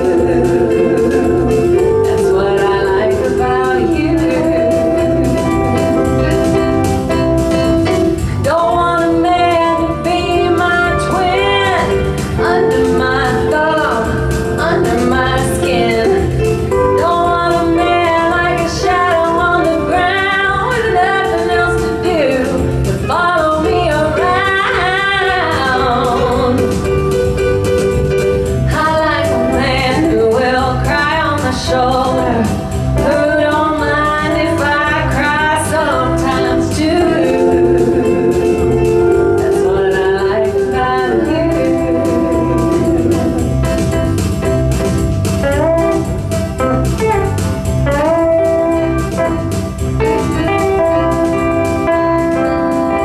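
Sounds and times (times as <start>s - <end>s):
woman singing into a microphone: 0.0s - 6.7s, 7.8s - 27.0s, 28.6s - 43.7s
band playing: 0.0s - 53.0s
drum and bass beat: 0.0s - 53.0s.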